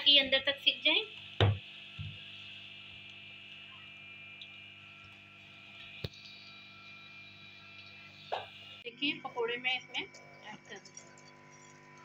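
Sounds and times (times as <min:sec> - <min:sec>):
knock: 0:01.4 - 0:02.1.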